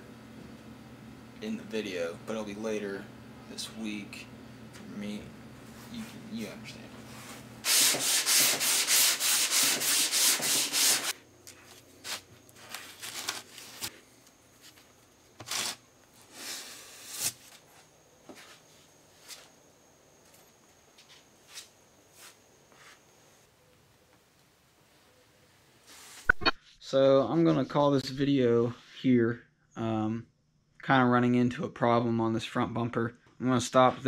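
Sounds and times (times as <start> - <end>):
hand sanding strokes: 7.1 - 11.2.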